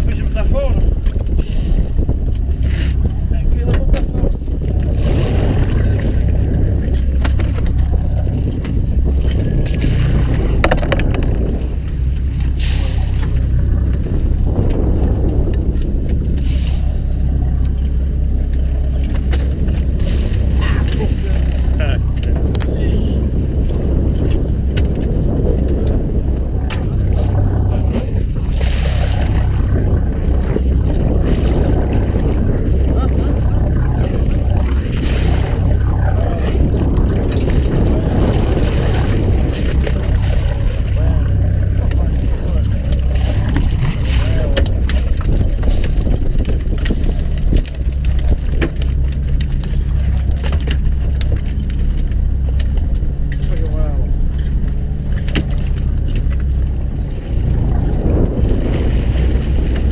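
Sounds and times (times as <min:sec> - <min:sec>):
boat engine humming: 0:00.0 - 0:59.9
rush of water: 0:00.0 - 0:59.9
sea wash: 0:00.0 - 0:59.9.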